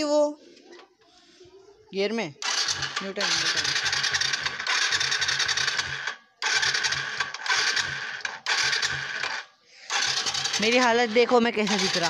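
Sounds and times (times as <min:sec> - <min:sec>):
motorcycle starter cranking engine: 0:02.4 - 0:12.0.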